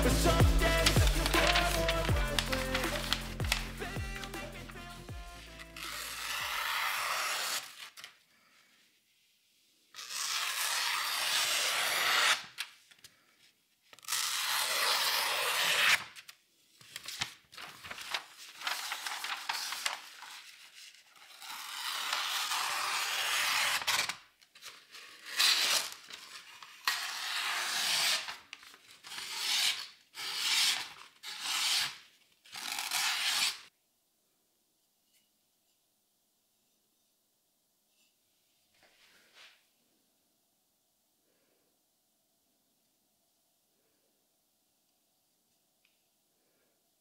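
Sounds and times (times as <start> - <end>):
knife slicing through paper: 0.7 - 4.5, 5.8 - 8.2, 10.0 - 12.7, 14.0 - 16.3, 17.0 - 33.7.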